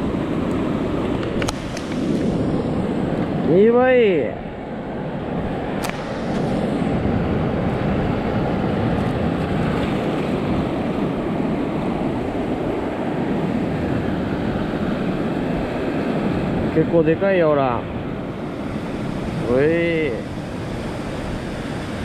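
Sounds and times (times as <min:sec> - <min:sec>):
surf washing on reef: 0:00.0 - 0:22.0
wind on microphone: 0:00.0 - 0:22.0
sharp click: 0:01.2 - 0:02.3, 0:05.8 - 0:06.5.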